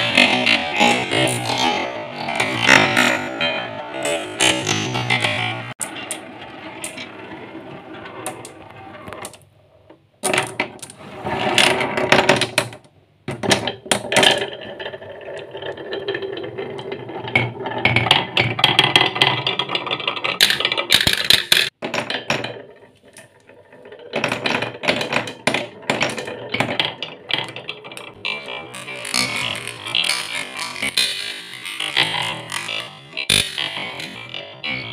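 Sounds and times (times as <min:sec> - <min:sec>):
marbles rattling down wooden tracks: 0:10.2 - 0:34.9.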